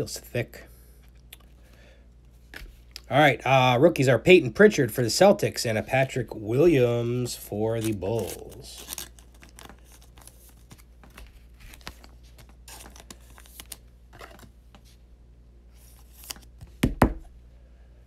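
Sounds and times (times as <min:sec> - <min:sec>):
cards sliding into plastic sleeves: 0:07.3 - 0:15.0, 0:15.7 - 0:16.8.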